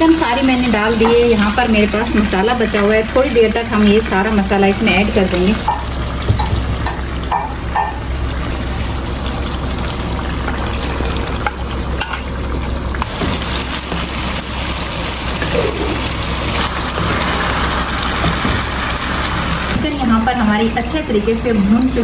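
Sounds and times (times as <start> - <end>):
chicken sizzling in pan: 0.0 - 19.8.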